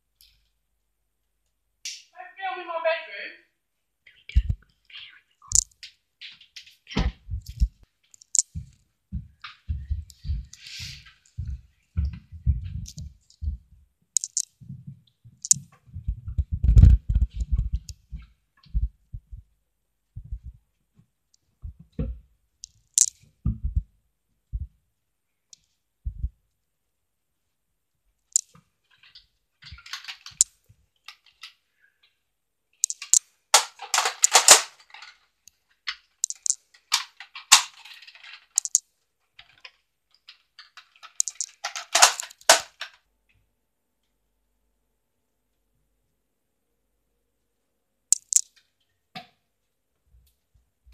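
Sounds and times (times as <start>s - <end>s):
soft footsteps: 5.6s - 22.3s, 23.0s - 24.8s, 26.0s - 26.4s
plastic toy blaster clicking: 32.8s - 35.0s, 36.3s - 38.8s, 40.7s - 42.9s.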